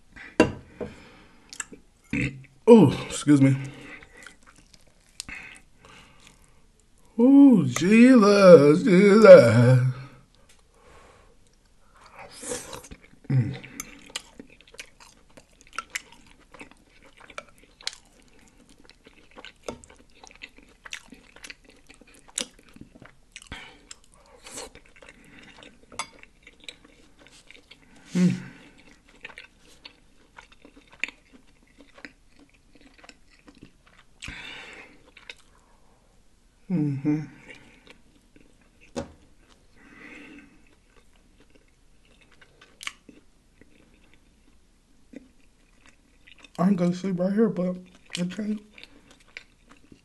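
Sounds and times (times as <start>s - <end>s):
chewing and lip-smacking: 1.5s - 1.8s, 3.8s - 7.0s, 11.4s - 35.6s, 37.4s - 39.7s, 40.3s - 46.6s, 47.8s - 50.0s.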